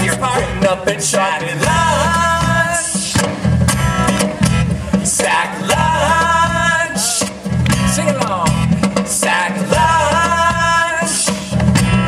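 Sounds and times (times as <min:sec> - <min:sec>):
person singing: 0:00.0 - 0:03.4, 0:04.9 - 0:07.5, 0:08.1 - 0:11.7
acoustic guitar: 0:00.0 - 0:12.0
drum kit: 0:00.0 - 0:12.0
electric bass: 0:00.0 - 0:12.0.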